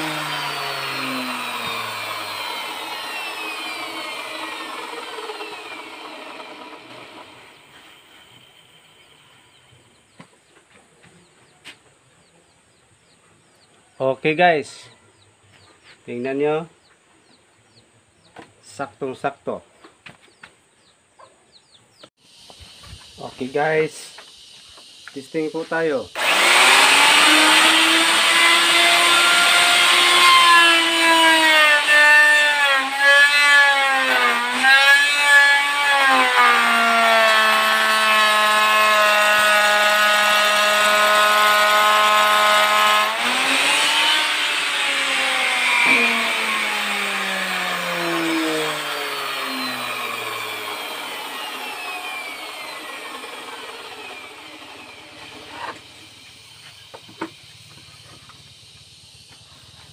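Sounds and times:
electric router cutting wood: 0:00.0 - 0:10.2, 0:25.0 - 0:58.4.

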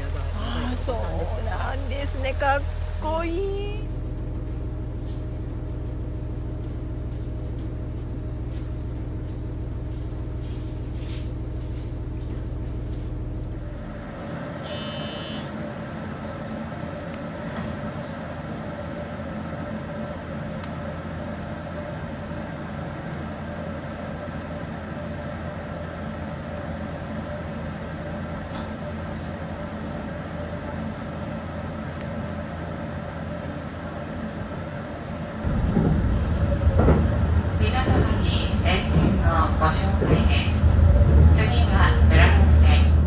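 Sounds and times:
low hum: 0:00.0 - 0:43.0
train running rumble: 0:00.0 - 0:43.0
short high beep: 0:14.7 - 0:15.5.

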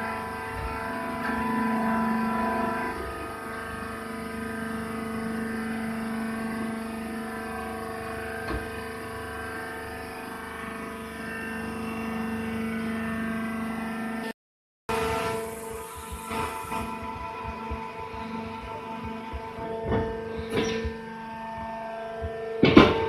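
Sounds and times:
machine motor humming: 0:14.9 - 0:23.0.

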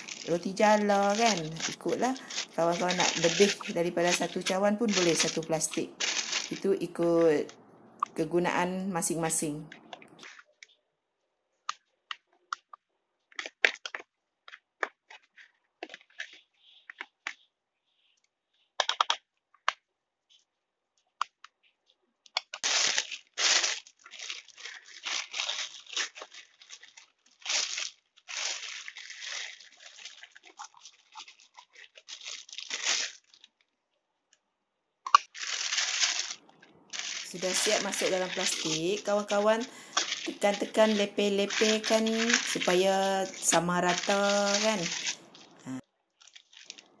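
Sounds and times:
plastic bag crinkling: 0:00.0 - 0:10.6, 0:13.2 - 0:17.5, 0:21.8 - 0:33.8, 0:35.1 - 0:47.0
metal spoon scraping plastic cup: 0:37.0 - 0:45.6.

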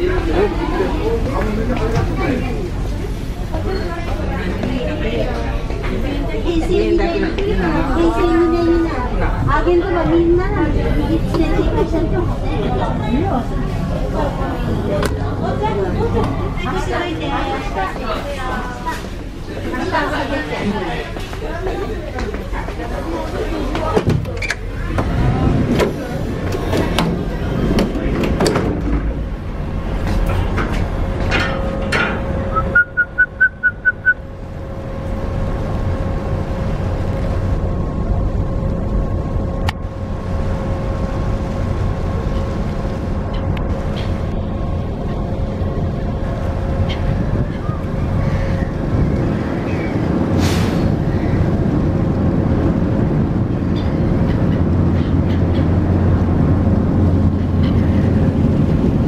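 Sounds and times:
low rumble of wind and engine: 0:00.0 - 0:59.0
faint gull calls: 0:46.8 - 0:48.8.

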